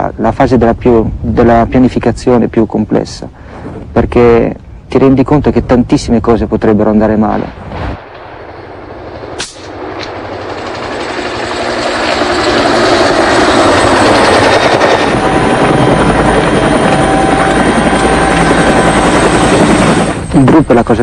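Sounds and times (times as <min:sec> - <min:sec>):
helicopter rotor pulsing: 0:08.2 - 0:21.0.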